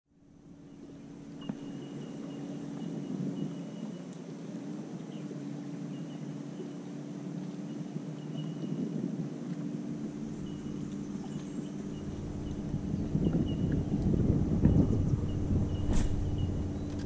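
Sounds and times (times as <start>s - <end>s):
electric motor humming: 10.0s - 17.0s
faint high chirping: 10.3s - 14.0s.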